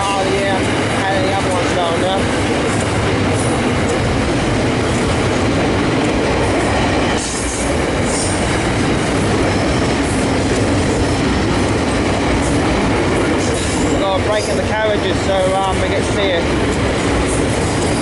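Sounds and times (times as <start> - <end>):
train wheels rumbling on rails: 0.0 - 18.0.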